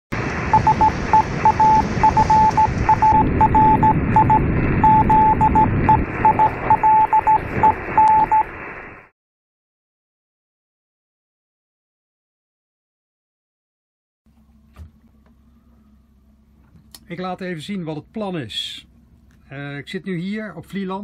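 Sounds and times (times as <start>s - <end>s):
low rumble: 0.1s - 9.1s
morse code beeping: 0.5s - 8.5s.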